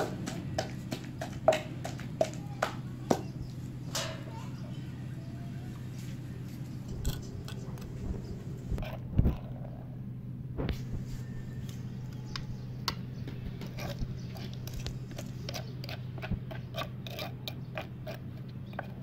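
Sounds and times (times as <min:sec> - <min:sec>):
metal spoon scraping mortar: 0:13.5 - 0:19.0.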